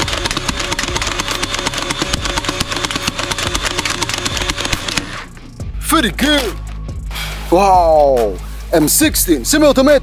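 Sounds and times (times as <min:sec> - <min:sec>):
fast stream of clicks: 0:00.0 - 0:05.1
toy dart gun motor: 0:00.0 - 0:05.3.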